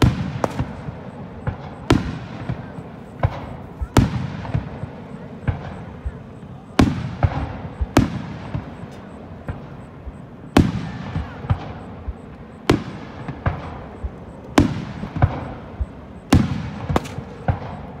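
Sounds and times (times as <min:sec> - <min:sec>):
firework pops and crackles: 0:00.0 - 0:06.2, 0:10.5 - 0:18.0
firework shells booming: 0:00.0 - 0:18.0.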